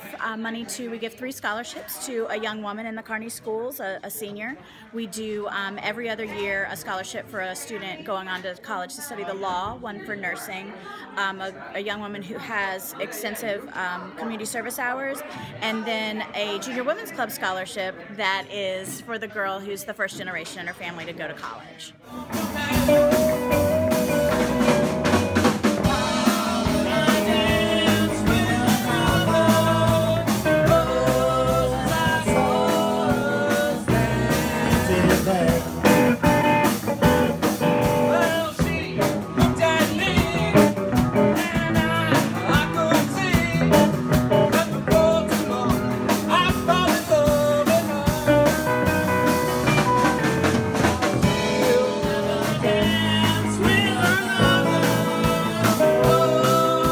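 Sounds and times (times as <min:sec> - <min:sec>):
person singing: 0:22.0 - 0:49.8, 0:51.0 - 0:56.9
bass guitar: 0:22.1 - 0:56.9
drum kit: 0:22.1 - 0:56.9
electric guitars: 0:22.1 - 0:56.9.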